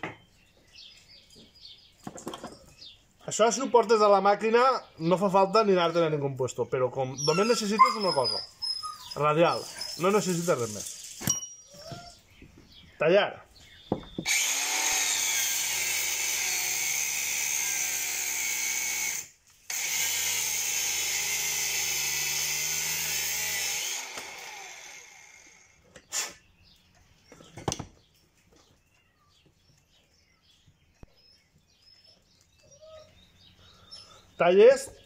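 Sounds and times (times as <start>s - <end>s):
sharp knocks: 13.9s - 14.3s
angle grinder cutting hose: 14.2s - 26.4s.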